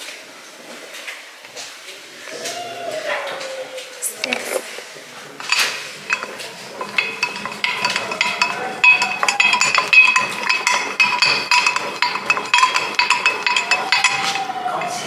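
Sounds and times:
crockery and cutlery clinking: 4.2 - 15.0.

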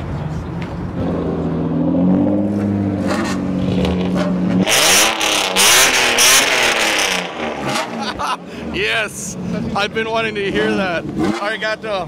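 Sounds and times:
car engine revving: 0.3 - 12.0.

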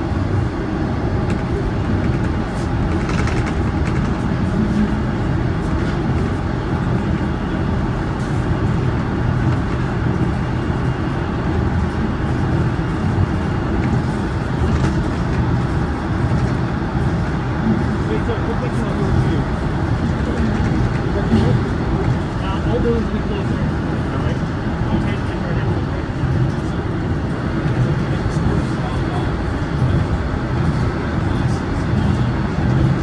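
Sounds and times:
subway train rumbling: 0.0 - 33.0.

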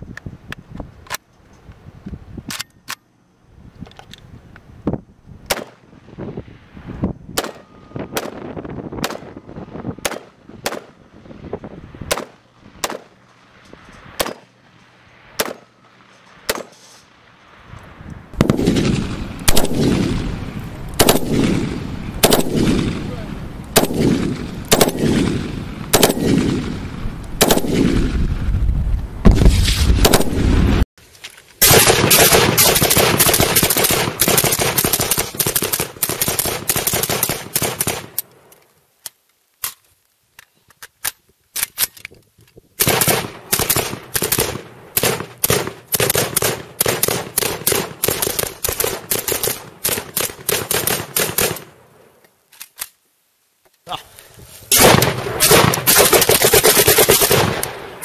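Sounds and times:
carbine single shots: 5.5 - 5.8, 7.4 - 8.4, 9.0 - 9.4, 10.0 - 11.0, 12.1 - 13.2, 14.2 - 14.6, 15.4 - 15.8, 16.4 - 16.8, 18.4 - 20.3, 20.9 - 26.8, 27.4 - 28.2, 29.3 - 30.5, 31.6 - 38.3, 42.8 - 51.8, 54.7 - 58.0
gunshots with echoing tail: 7.4 - 9.4, 10.0 - 11.0, 12.0 - 13.1, 15.4 - 15.7, 18.4 - 28.4, 29.2 - 30.8, 31.6 - 38.2, 54.7 - 58.0
suppressed full-auto gunfire: 12.1 - 13.1, 15.4 - 15.7, 18.4 - 20.3, 21.0 - 23.1, 23.8 - 26.8, 27.4 - 28.2, 29.3 - 30.6, 31.6 - 38.2, 42.8 - 51.7, 54.7 - 57.9.

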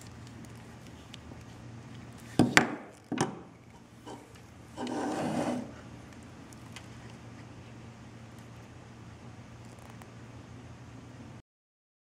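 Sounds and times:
brief rubbing scrape: 4.0 - 5.8.

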